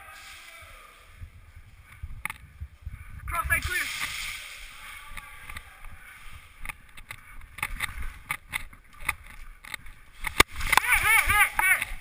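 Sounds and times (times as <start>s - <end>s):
rustling and rumbling of gear: 1.1s - 12.0s
sharp clicks and knocks: 6.6s - 10.9s.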